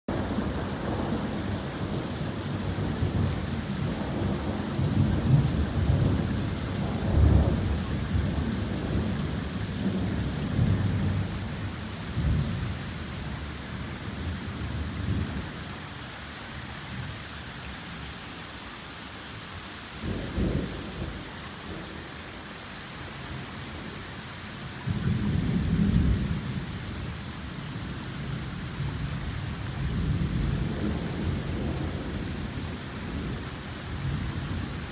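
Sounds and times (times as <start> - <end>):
thunder rumbling: 0.1 - 15.6, 20.0 - 22.0, 24.8 - 27.1, 27.7 - 34.9
torrential rain pouring: 0.1 - 34.9.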